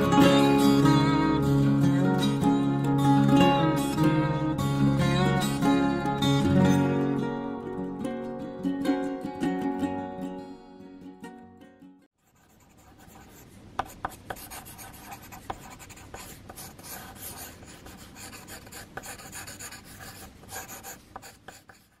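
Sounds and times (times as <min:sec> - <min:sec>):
pencil scratching on paper: 0:12.2 - 0:22.0
pencil tapping on paper: 0:13.0 - 0:22.0.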